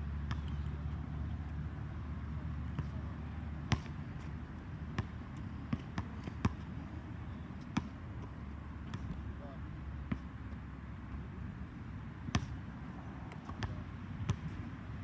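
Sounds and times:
basketball bouncing on hard court: 0.3 - 0.7, 3.7 - 4.0, 5.0 - 6.6, 8.8 - 9.2, 10.1 - 10.3, 12.3 - 12.6, 13.4 - 14.5.

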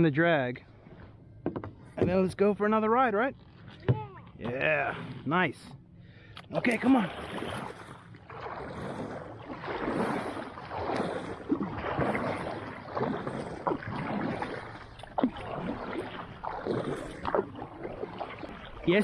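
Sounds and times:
light water splashes: 6.3 - 19.0
paddle strokes swishing water: 6.6 - 19.0.

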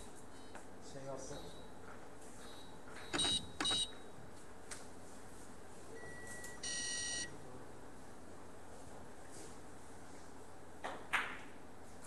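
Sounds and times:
short electronic beep: 6.0 - 7.3.

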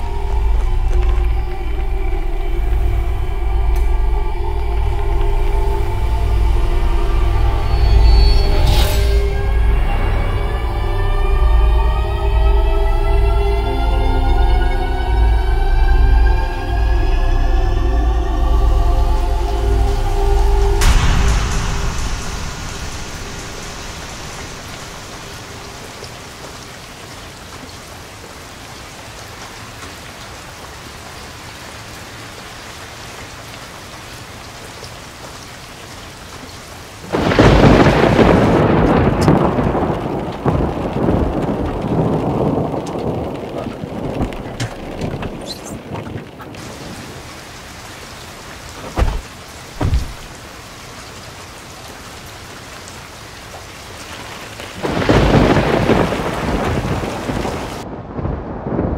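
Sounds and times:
steady rain: 0.0 - 58.9
thunderclap rumbling: 19.5 - 27.2, 37.0 - 50.8, 53.7 - 58.9
short low thumps: 48.9 - 50.4.

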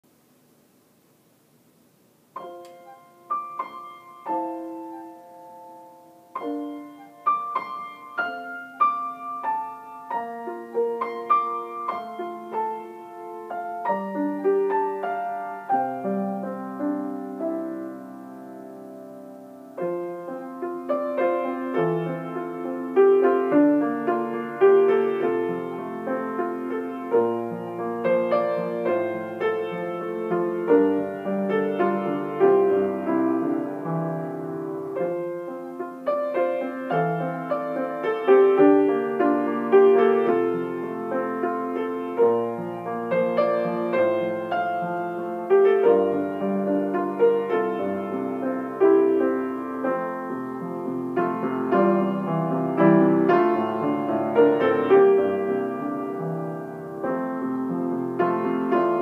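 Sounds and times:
grand piano playing: 2.4 - 59.0.

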